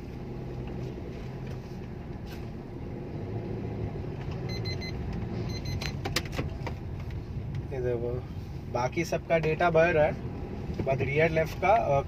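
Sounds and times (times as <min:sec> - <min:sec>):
car engine humming: 0:00.0 - 0:12.0
short electronic beeps: 0:04.4 - 0:06.0.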